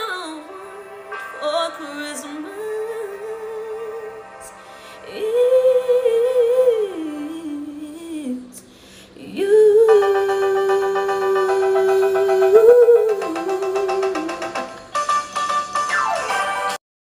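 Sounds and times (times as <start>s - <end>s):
woman singing with vibrato: 0.0s - 14.8s
rapidly repeated backing chords: 9.4s - 16.8s.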